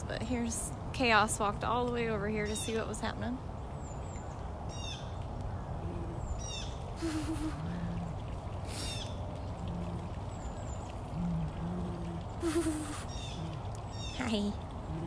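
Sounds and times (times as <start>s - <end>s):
birds chirping: 0.0s - 15.0s
steady low rumble: 0.0s - 15.0s
low hoot-like bird notes: 4.7s - 15.0s.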